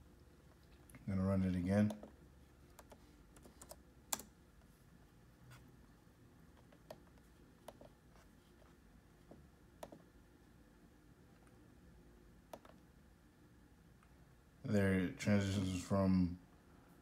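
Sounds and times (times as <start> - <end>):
laptop keys clicking: 1.8 - 4.3, 12.5 - 12.8.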